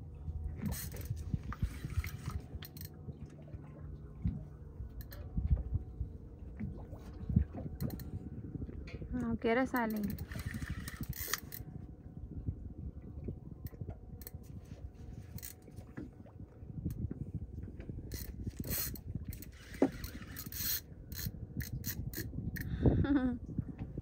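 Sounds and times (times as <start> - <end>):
steady low rumble: 0.0 - 24.0
fishing reel cranking and scraping: 0.6 - 3.0, 9.7 - 11.6, 15.3 - 15.6, 18.1 - 22.7.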